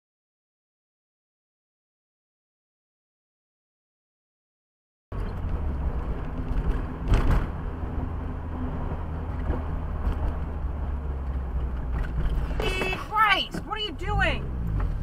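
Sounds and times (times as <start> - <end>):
car road and engine rumble: 5.1 - 15.0.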